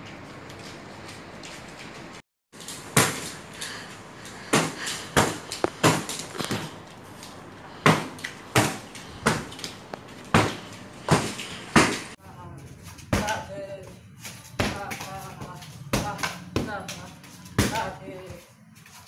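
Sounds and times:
kicks smacking a padded shield: 2.9s - 3.3s, 4.5s - 6.7s, 7.8s - 9.6s, 10.3s - 12.2s, 13.1s - 13.5s, 14.5s - 18.0s.

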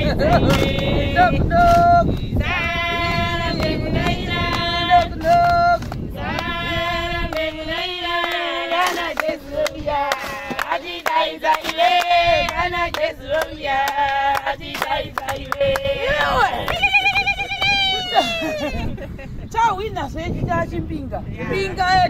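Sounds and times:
women singing together: 0.0s - 19.0s
hand clapping: 3.6s - 6.6s, 8.2s - 18.0s.

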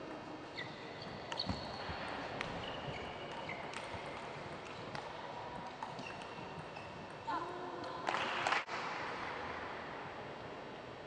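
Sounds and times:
shoes squeaking on floor: 0.5s - 4.2s, 5.9s - 7.1s.

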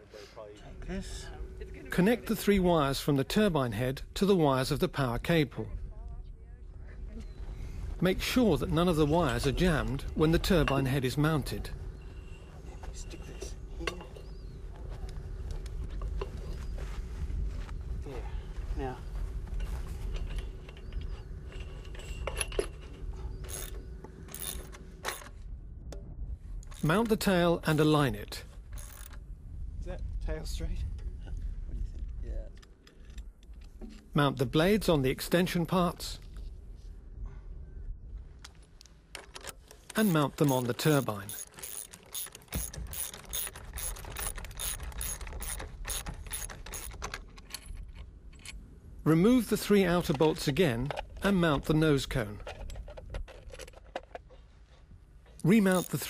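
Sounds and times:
ratchet wrench clicking: 23.5s - 25.2s, 40.9s - 47.1s, 55.7s - 56.0s.

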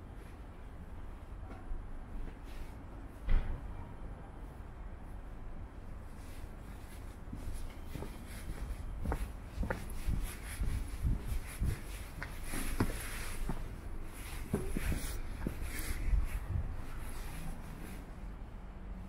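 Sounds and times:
steady low rumble: 2.8s - 19.0s
footsteps walking: 6.1s - 18.1s.

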